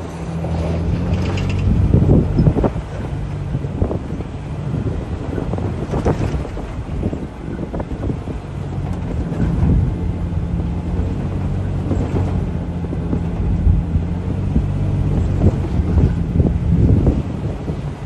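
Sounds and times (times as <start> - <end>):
car engine running: 0.0 - 18.0
wind buffeting microphone: 0.0 - 18.0.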